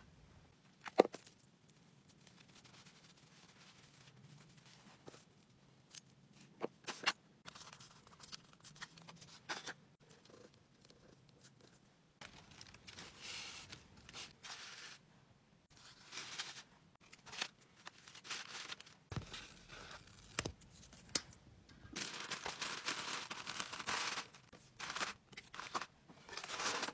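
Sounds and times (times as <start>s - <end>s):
paper rustling and crinkling: 12.2s - 15.0s, 15.7s - 21.0s, 21.9s - 26.9s.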